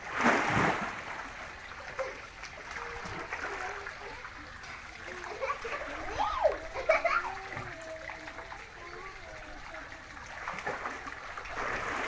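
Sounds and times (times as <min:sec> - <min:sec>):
water splash: 0:00.0 - 0:04.2, 0:10.2 - 0:12.0
pool water trickling and sloshing: 0:00.0 - 0:12.0.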